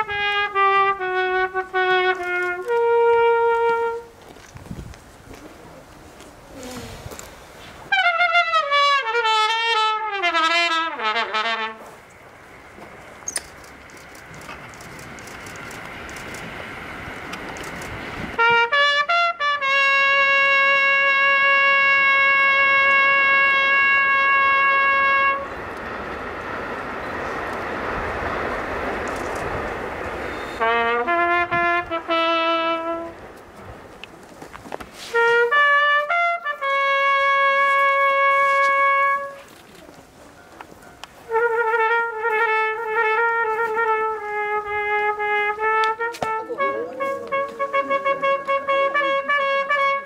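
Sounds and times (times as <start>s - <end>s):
solo trumpet improvising: 0.0s - 4.3s, 7.9s - 12.1s, 18.4s - 25.6s, 30.3s - 33.4s, 34.9s - 50.0s.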